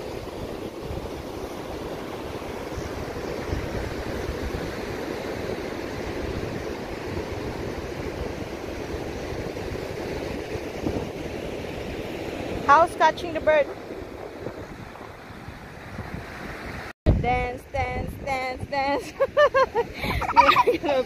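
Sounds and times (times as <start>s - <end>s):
ocean surf rushing: 0.0s - 16.9s, 18.9s - 21.0s
wind buffeting microphone: 0.0s - 21.0s.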